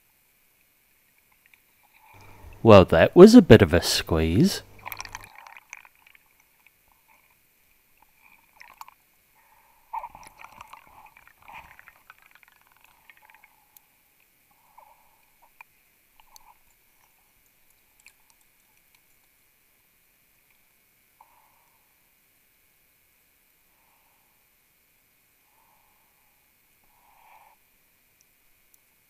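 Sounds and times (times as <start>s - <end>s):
underwater gurgling: 4.1s - 5.6s.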